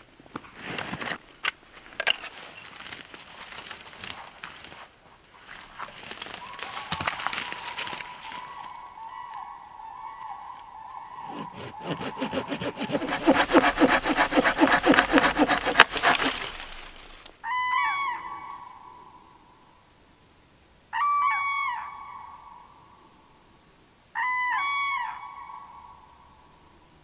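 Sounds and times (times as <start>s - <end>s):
cranes trumpeting: 11.2s - 17.2s
hand saw cutting a log: 11.2s - 17.3s.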